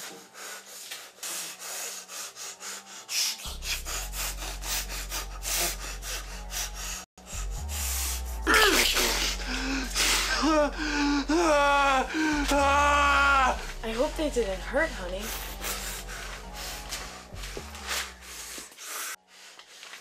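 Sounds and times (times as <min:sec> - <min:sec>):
low droning score: 0:03.5 - 0:18.7
wavering cry of pain: 0:08.5 - 0:09.0, 0:09.6 - 0:13.6.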